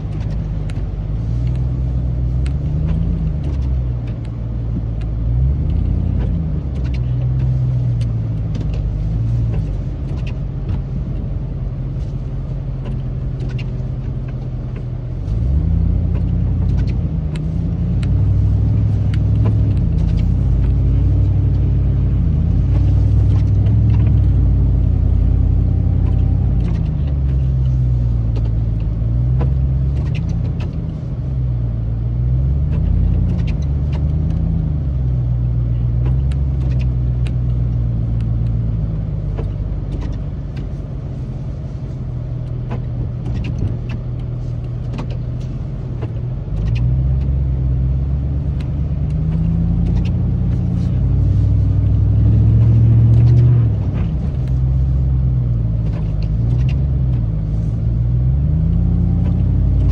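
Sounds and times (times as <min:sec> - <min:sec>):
light ticks: 0:00.0 - 0:31.2, 0:32.6 - 0:59.9
truck engine revving: 0:12.6 - 0:59.9.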